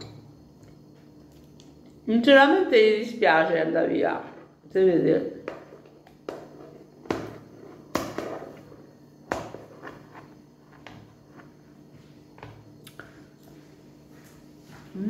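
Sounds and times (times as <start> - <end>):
faint steady hum: 0.0 - 15.0.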